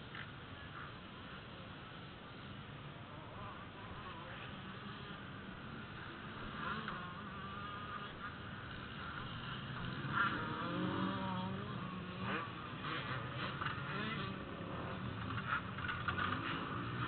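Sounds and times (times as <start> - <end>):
dirt bikes revving: 3.4 - 17.0.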